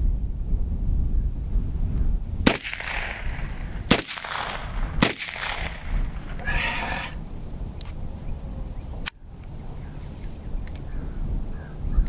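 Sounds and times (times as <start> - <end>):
pistol shots echoing: 2.4 - 7.2.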